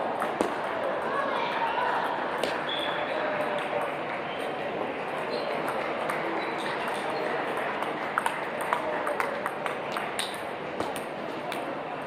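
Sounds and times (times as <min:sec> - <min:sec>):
murmur of voices: 0:00.0 - 0:12.0
distant ping pong clicks: 0:05.2 - 0:11.7.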